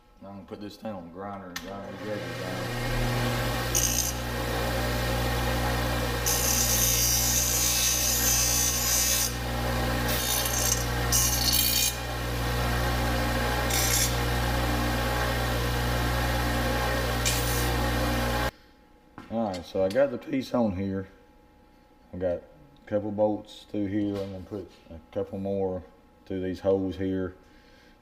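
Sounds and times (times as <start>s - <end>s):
bench grinder motor hum: 1.9s - 18.5s.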